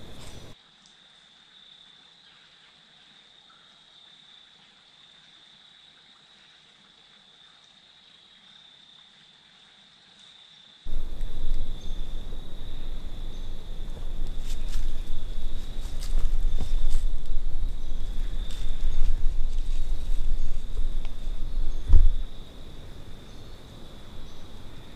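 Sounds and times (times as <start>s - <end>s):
faint hiss: 0.0s - 24.9s
loud low rumbling noise: 10.9s - 22.8s.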